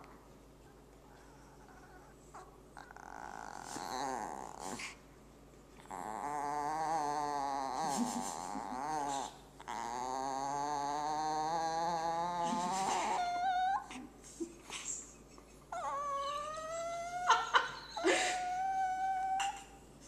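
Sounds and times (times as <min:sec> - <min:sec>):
dog growling and whining: 0:00.6 - 0:05.0, 0:05.8 - 0:19.9.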